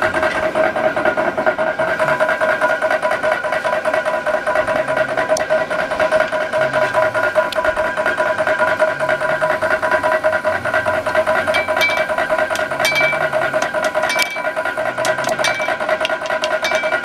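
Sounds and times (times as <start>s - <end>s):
hammer striking hot metal on anvil: 11.2s - 17.0s.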